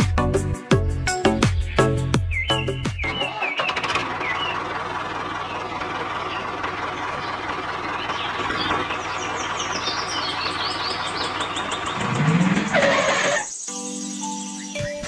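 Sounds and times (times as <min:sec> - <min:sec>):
high chirps: 0:01.6 - 0:04.6.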